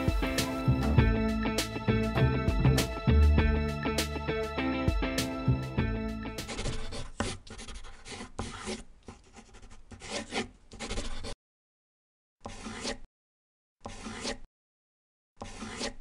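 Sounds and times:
marker pen scratching: 6.4s - 11.4s, 12.4s - 13.1s, 13.8s - 14.5s, 15.4s - 16.0s.

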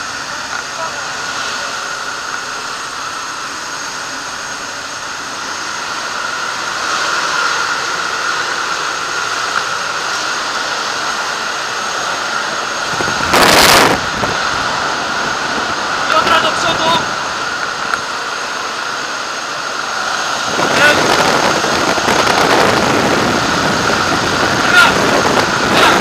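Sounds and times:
light aircraft engine and propeller drone: 0.0s - 26.0s
wind rushing: 5.4s - 26.0s.

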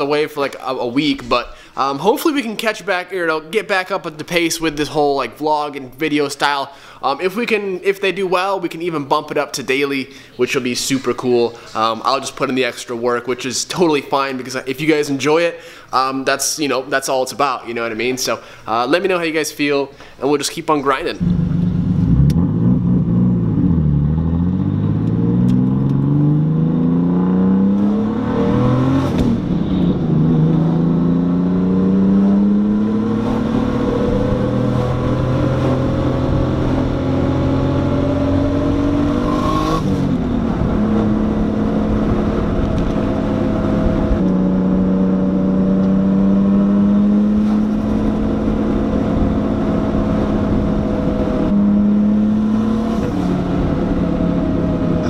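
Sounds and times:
car engine accelerating: 21.2s - 55.0s
gear upshifts: 21.2s - 55.0s.

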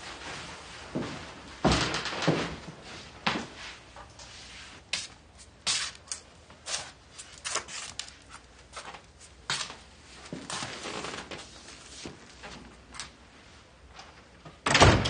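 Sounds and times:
footsteps on wooden floor: 0.2s - 3.6s.

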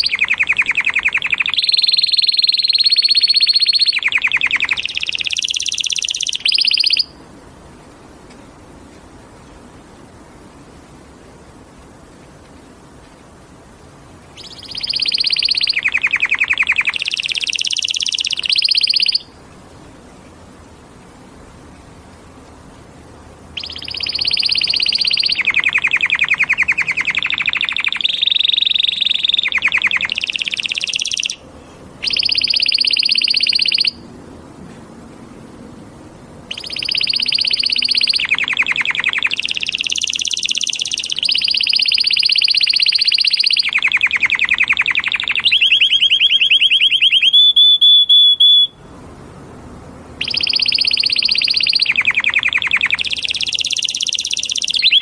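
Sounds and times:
canary singing trills: 0.0s - 7.2s, 14.3s - 19.4s, 23.5s - 31.4s, 32.0s - 34.1s, 36.5s - 48.9s, 50.2s - 55.0s.

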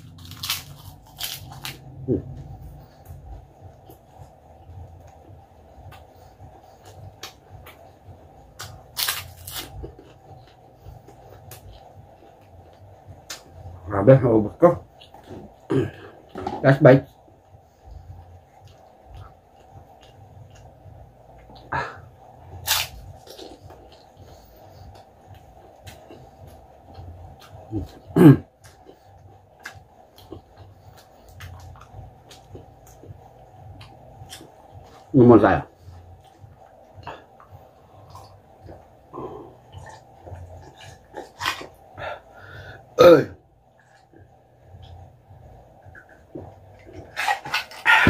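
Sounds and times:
person chewing crunchy food: 0.0s - 5.2s, 5.8s - 13.7s, 18.1s - 35.2s, 35.8s - 42.9s, 45.7s - 48.0s
throaty vocal sound: 15.7s - 16.4s, 27.7s - 28.5s, 39.1s - 40.3s, 41.3s - 43.4s.

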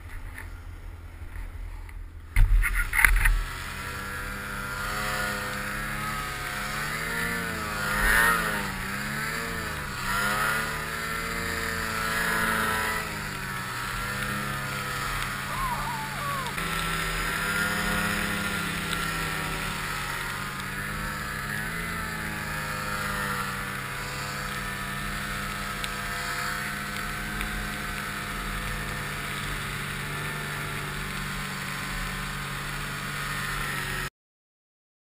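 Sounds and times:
snowmobile engine running: 2.4s - 34.1s.

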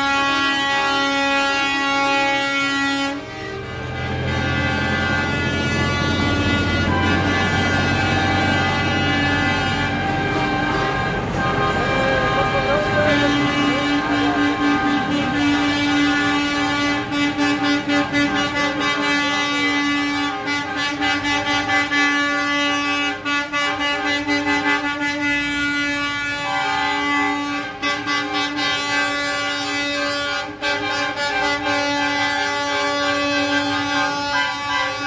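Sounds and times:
truck air horns blaring: 0.0s - 35.0s.

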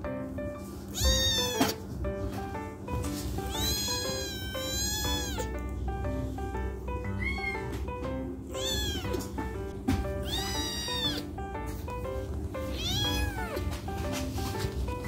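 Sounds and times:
plucked background music: 0.0s - 15.0s
kitten meowing loudly: 0.9s - 1.8s, 3.5s - 5.5s, 8.6s - 9.2s, 10.2s - 11.2s, 12.7s - 13.6s.

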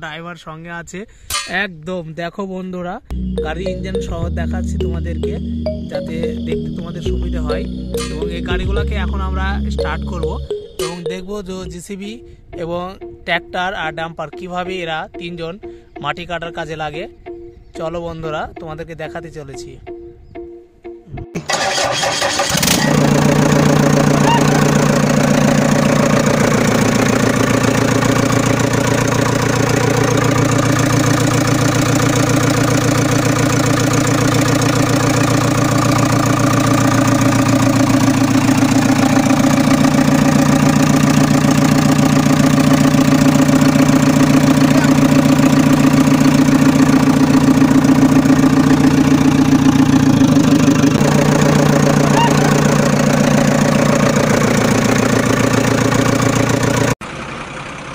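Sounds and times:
tractor engine idling: 3.1s - 11.8s, 21.4s - 57.9s.

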